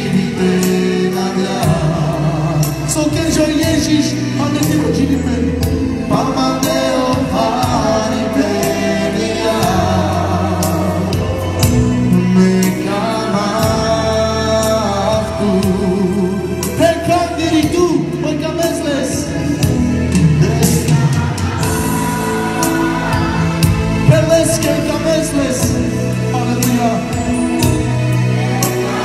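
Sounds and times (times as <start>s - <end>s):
gospel singing: 0.0s - 29.0s
instrumental backing with percussion: 0.0s - 29.0s.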